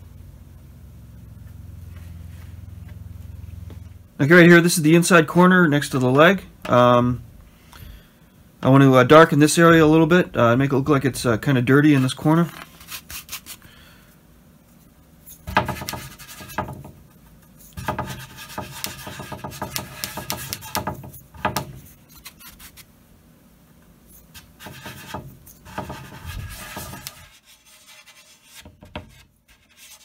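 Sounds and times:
paintbrush scrubbing on wood: 24.6 - 28.7.

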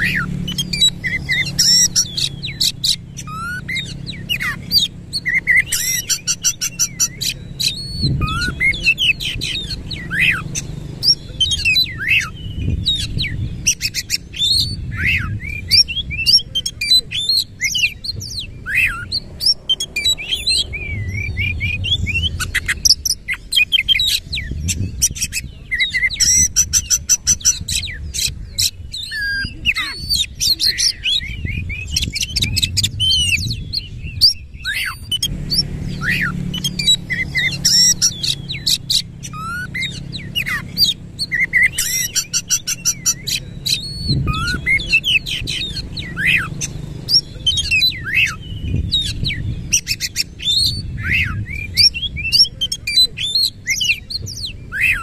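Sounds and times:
bird singing: 0.0 - 55.0.

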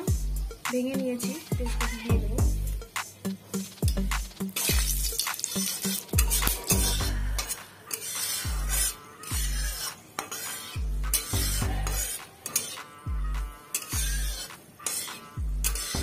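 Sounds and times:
background music with deep beat: 0.0 - 9.8, 10.8 - 16.0
spices sizzling in hot oil: 2.5 - 16.0
metal spatula scraping pan: 2.8 - 16.0.

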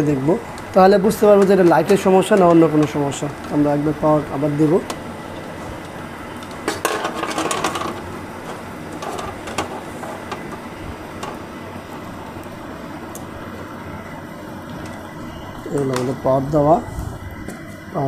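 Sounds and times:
cables rustling and clicking: 0.0 - 13.4.

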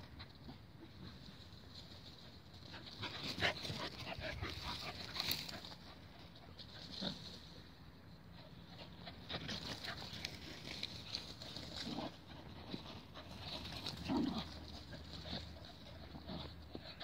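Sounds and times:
dogs making low vocal sounds: 8.2 - 17.0.

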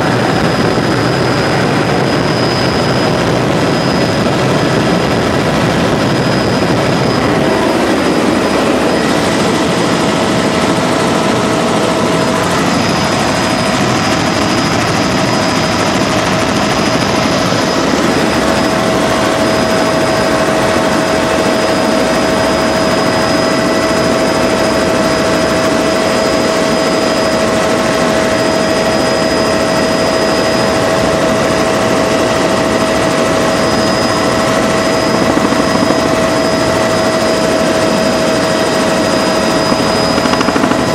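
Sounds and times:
helicopter engine and rotor: 0.0 - 40.9
whining tones: 0.0 - 40.9.

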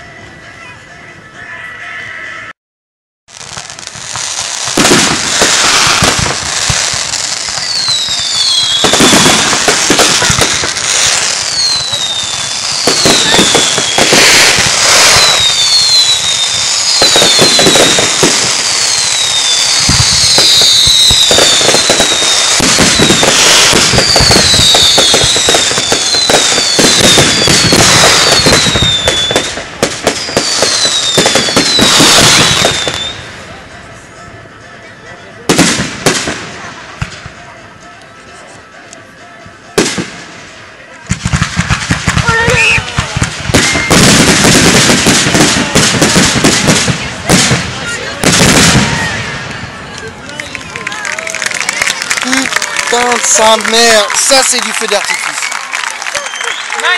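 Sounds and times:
fireworks crackling: 3.3 - 34.2, 35.4 - 56.9
falling firework whistles: 4.2 - 33.3, 42.2 - 46.8, 55.1 - 56.9.

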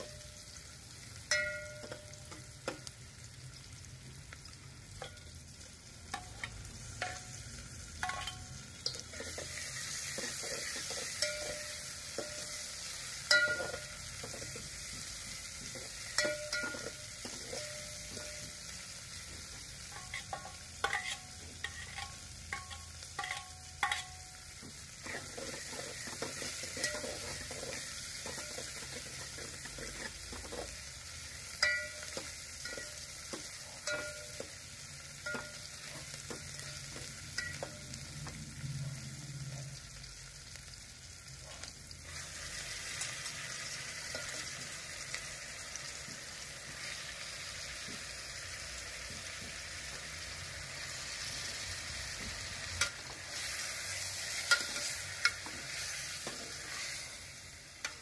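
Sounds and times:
onions sizzling in hot oil: 0.0 - 58.0
ladle scraping and clinking pot: 8.0 - 12.6, 13.3 - 14.8, 15.7 - 18.6, 19.9 - 24.3, 25.0 - 30.8, 31.6 - 34.6.

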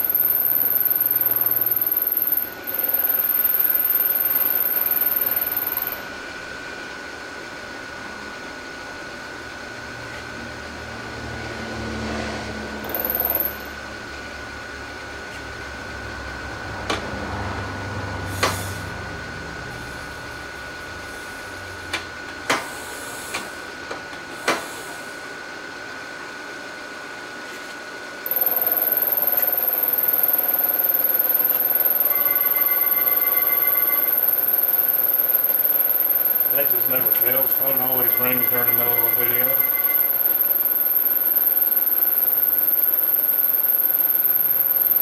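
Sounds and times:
milling machine whining: 0.0 - 6.2, 28.2 - 45.0
milling machine cutting metal: 28.3 - 45.0.

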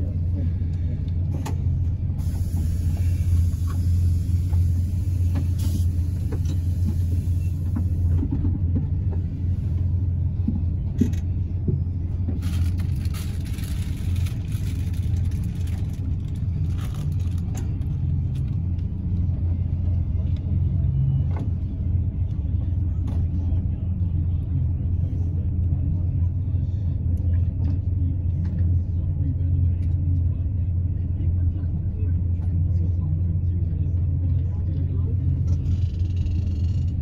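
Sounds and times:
bus engine and road rumble: 0.0 - 37.0.

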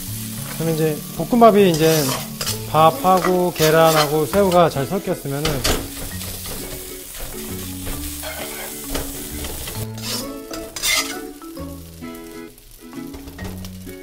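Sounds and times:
background music: 0.0 - 14.0
rice sizzling: 0.0 - 14.0
ladle scraping a wok: 1.7 - 11.4.

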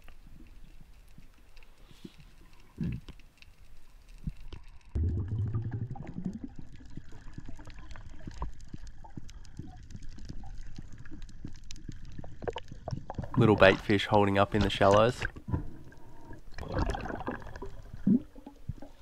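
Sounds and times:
underwater clicks and crackles: 0.0 - 19.0
water surge rushing and gurgling: 12.4 - 19.0.

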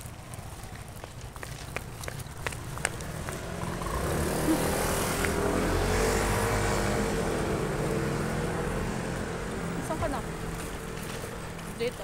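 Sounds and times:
vehicle passing close by: 2.9 - 11.8.

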